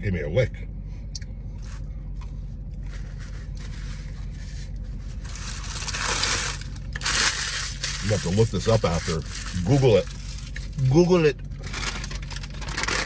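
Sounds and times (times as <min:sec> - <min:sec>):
low car cabin hum: 0:00.0 - 0:13.0
paper wrapper rustling and crinkling: 0:02.8 - 0:10.8, 0:11.6 - 0:13.0.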